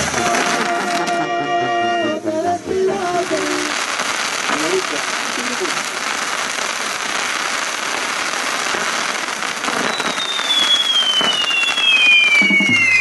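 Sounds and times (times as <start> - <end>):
fireworks crackling and fizzing: 0.0 - 13.0
high falling whistle: 9.7 - 13.0.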